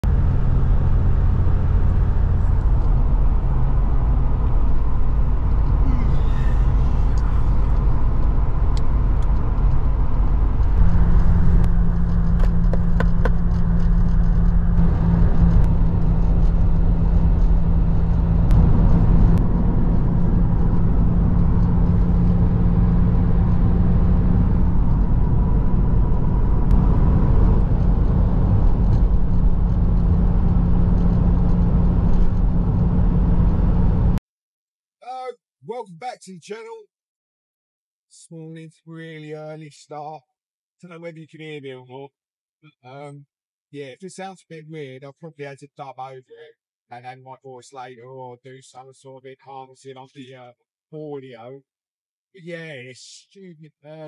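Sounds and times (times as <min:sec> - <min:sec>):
car engine drone: 0:00.0 - 0:34.2
road noise: 0:00.0 - 0:34.2.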